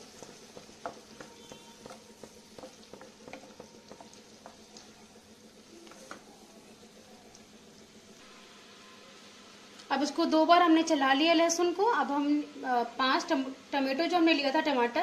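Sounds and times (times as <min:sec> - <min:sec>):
wooden spatula stirring: 0:00.0 - 0:07.5
garlic sizzling in butter: 0:00.0 - 0:11.1.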